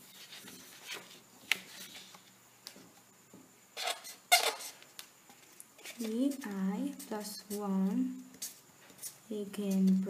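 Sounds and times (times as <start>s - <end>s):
marker scratching on paper: 5.8s - 10.0s.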